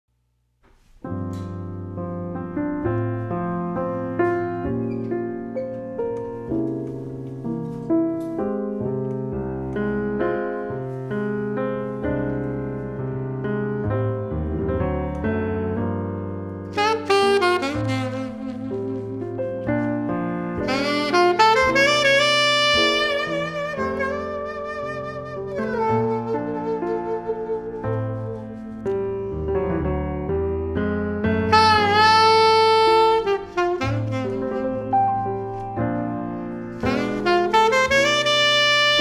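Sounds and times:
grand piano chords: 0.6 - 39.0
alto saxophone: 16.6 - 29.0, 31.4 - 39.0.

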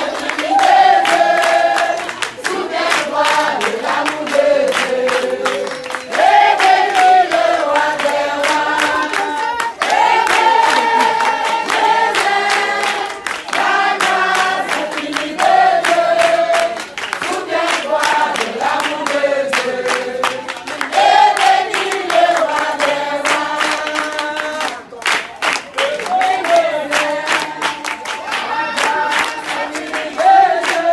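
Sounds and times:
steady rhythmic beat: 0.0 - 23.8
choir singing: 0.0 - 24.6, 26.0 - 30.9.

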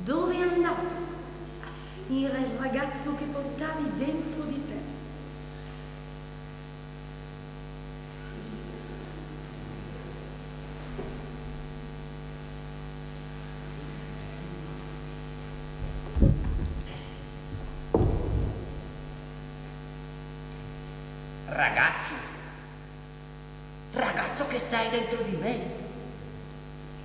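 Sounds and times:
electrical mains hum: 0.0 - 27.0
heavy low thumps: 15.4 - 19.6.

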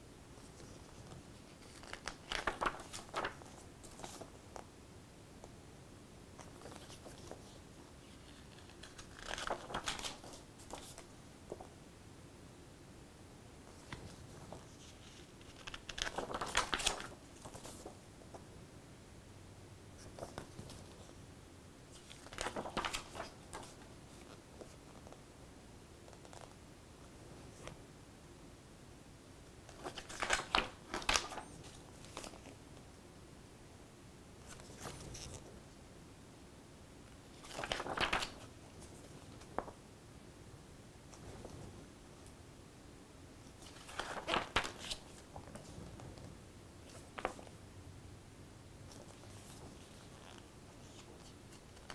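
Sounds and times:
paper pages turning: 0.4 - 4.4, 6.4 - 11.7, 13.7 - 18.0, 21.9 - 25.2, 29.7 - 32.6, 34.5 - 35.4, 37.3 - 39.8, 43.5 - 45.8, 46.9 - 47.5.

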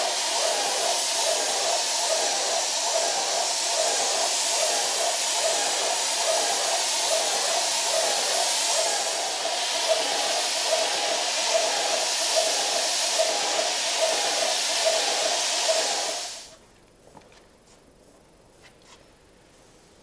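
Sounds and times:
spray gun hissing: 0.0 - 16.5.

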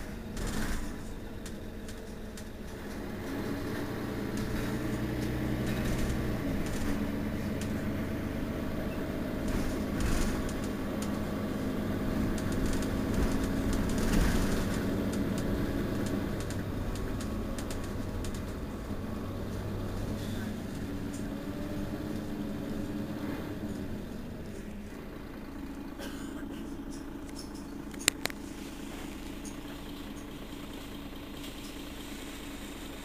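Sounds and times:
diesel bus engine idling: 0.0 - 33.0.

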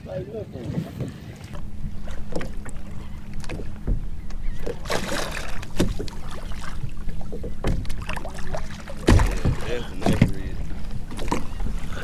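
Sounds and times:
water lapping against kayak hull: 0.0 - 12.0
knocks on boat: 3.4 - 6.2, 7.3 - 8.2, 9.0 - 11.5.

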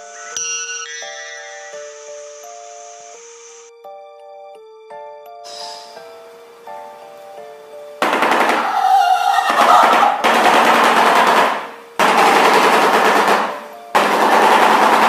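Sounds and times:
faint simple background melody: 0.0 - 15.0.

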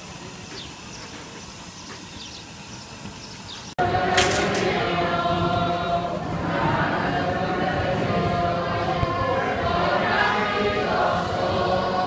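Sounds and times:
bird chirps: 0.5 - 3.8
crowd of men chanting prayers: 3.8 - 12.0.

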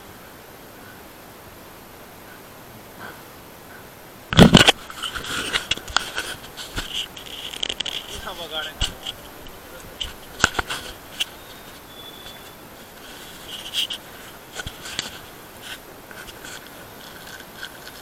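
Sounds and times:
camera handling noise: 4.3 - 18.0.

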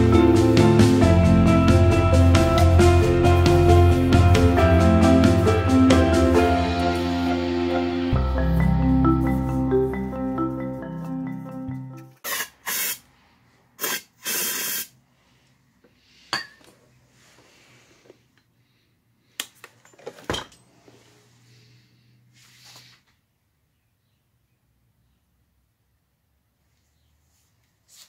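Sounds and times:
aerosol spray can squirts: 12.2 - 13.0, 13.8 - 14.9.

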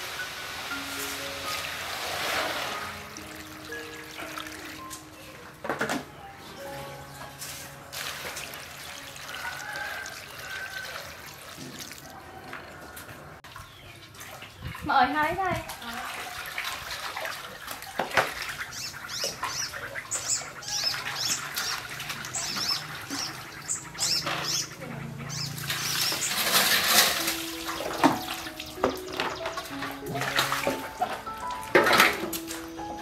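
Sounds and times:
water poured into metal basin: 0.0 - 4.8, 7.9 - 12.3, 25.6 - 28.9
soft background music: 0.0 - 12.4, 17.6 - 33.0
water sloshing in basins: 0.9 - 33.0
birds chirping: 3.2 - 7.8, 12.4 - 16.4, 17.4 - 31.7.

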